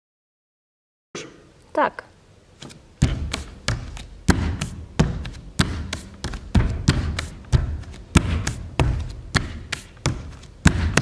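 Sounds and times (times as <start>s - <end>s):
bare feet stamping on stage: 2.6s - 11.0s.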